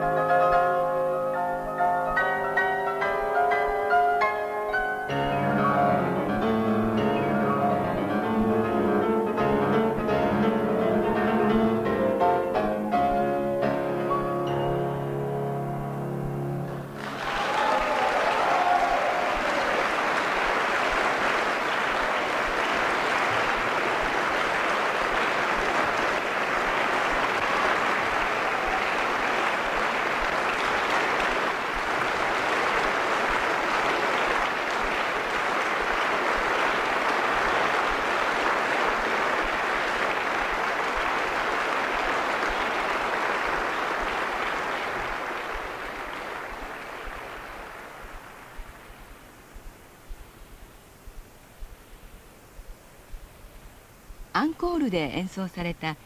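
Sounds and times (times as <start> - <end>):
concert audience applauding: 16.7 - 49.4.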